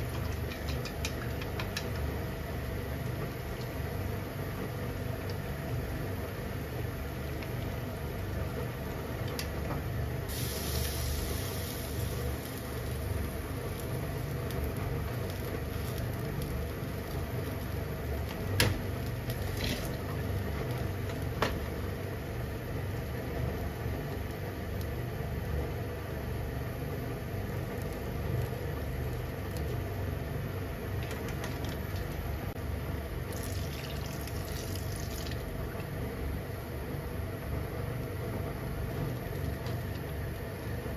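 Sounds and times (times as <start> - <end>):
steady low hum: 0.0 - 40.9
hissing rush of liquid: 10.3 - 13.2.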